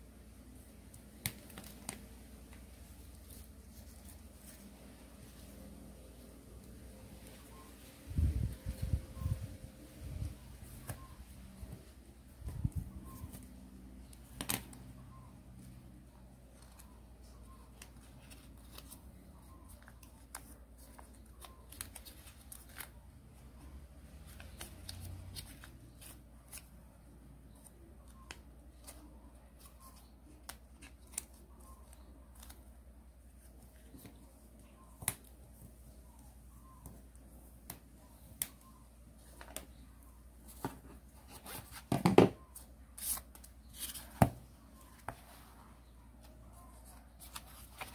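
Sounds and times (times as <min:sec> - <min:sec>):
paper crinkling and rustling: 0:46.2 - 0:47.9.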